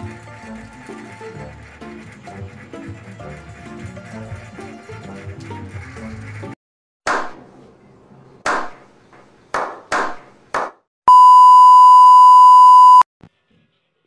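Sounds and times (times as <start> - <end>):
test-pattern beep: 11.1 - 13.0.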